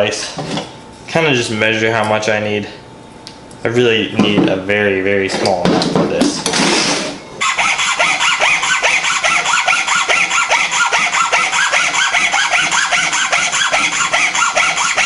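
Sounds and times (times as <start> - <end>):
hacksaw cutting wood: 6.5 - 15.0.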